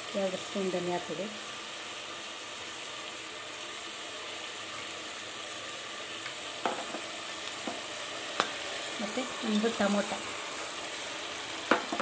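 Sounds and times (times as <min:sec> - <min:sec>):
chicken frying in oil: 0:00.0 - 0:12.0.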